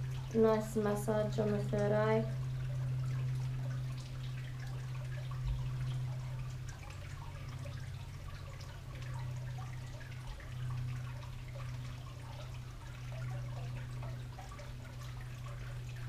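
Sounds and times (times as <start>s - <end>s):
fountain trickling and dripping: 0.0s - 16.0s
low hum: 0.0s - 16.0s.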